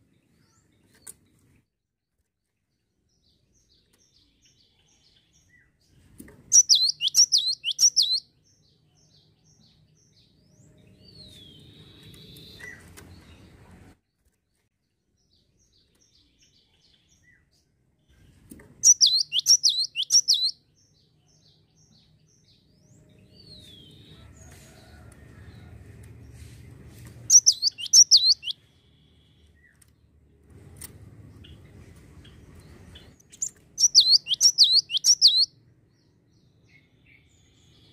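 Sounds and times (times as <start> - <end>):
quick ticking bird calls: 6.5 - 8.2, 18.8 - 20.5, 27.3 - 28.6, 33.2 - 35.5
bird singing whistled notes: 6.5 - 8.3, 18.8 - 20.6, 27.3 - 29.7, 33.3 - 35.5.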